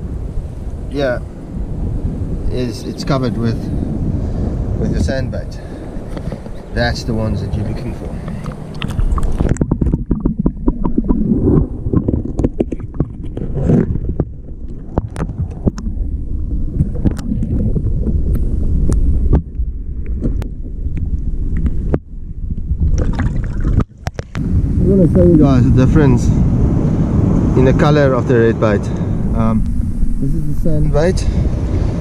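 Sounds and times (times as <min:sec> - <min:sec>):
underwater rumble and slosh: 0:00.0 - 0:32.0
underwater clicks and knocks: 0:08.2 - 0:16.0, 0:16.8 - 0:24.4.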